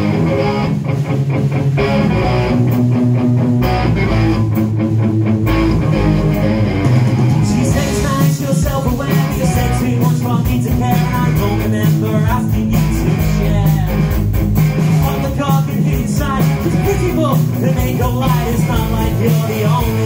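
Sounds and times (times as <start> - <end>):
live rock band playing: 0.0 - 20.0
man singing: 7.4 - 14.2, 15.0 - 20.0.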